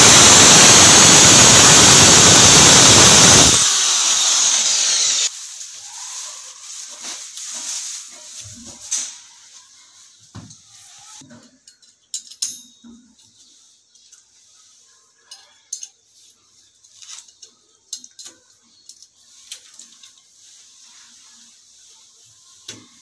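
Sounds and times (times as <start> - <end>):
electric drill grinding into tile: 0.0 - 5.3.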